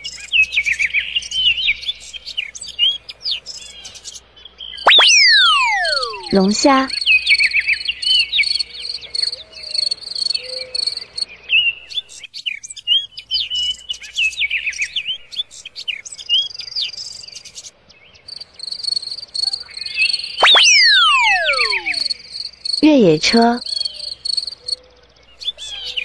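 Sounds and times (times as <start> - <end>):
insect pulsing call: 4.9 - 6.7, 20.4 - 22.2.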